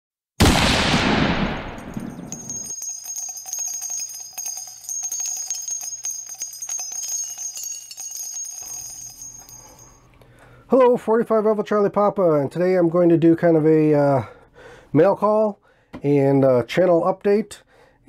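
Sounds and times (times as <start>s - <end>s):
loud bang: 0.4s - 2.3s
bell-like jingling: 1.6s - 10.1s.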